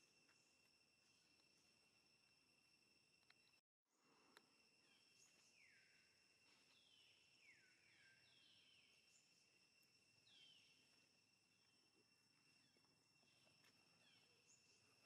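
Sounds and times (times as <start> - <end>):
insect drone: 0.0 - 15.0.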